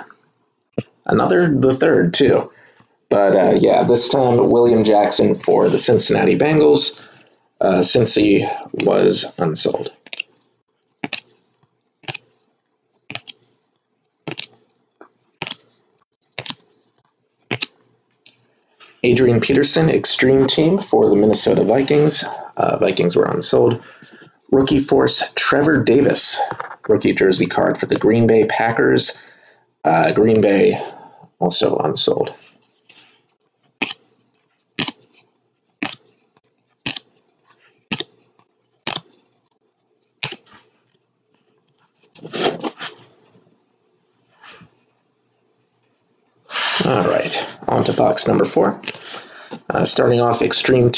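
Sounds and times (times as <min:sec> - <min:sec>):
trading cards snapping: 0:11.0 - 0:11.4, 0:12.0 - 0:12.3, 0:13.1 - 0:13.4, 0:14.2 - 0:14.6, 0:15.4 - 0:15.7, 0:16.3 - 0:16.7, 0:17.5 - 0:17.8, 0:35.8 - 0:36.1, 0:36.8 - 0:37.2, 0:37.9 - 0:38.2, 0:38.8 - 0:39.3, 0:40.2 - 0:40.6
trading cards flicked by hand: 0:11.0 - 0:12.4, 0:13.1 - 0:13.5, 0:14.2 - 0:14.6, 0:15.4 - 0:18.4.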